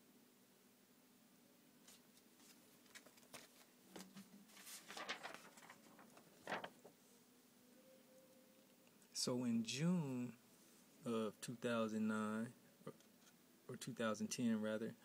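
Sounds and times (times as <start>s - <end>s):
paper rustling: 1.8s - 7.0s.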